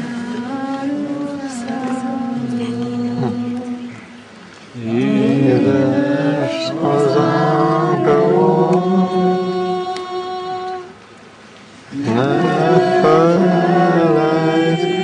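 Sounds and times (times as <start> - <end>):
woman singing into a microphone: 0.0 - 4.3, 5.0 - 11.1.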